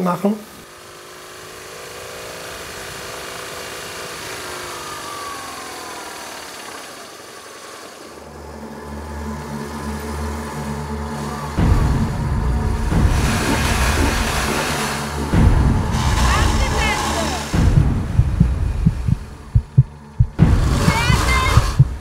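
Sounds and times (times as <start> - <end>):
motorcycle engine: 0.0 - 22.0.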